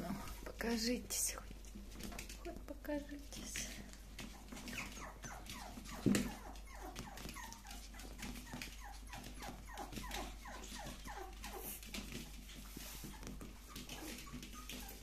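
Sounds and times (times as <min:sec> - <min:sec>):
puppies whining and whimpering: 0:04.2 - 0:12.2, 0:13.0 - 0:15.0.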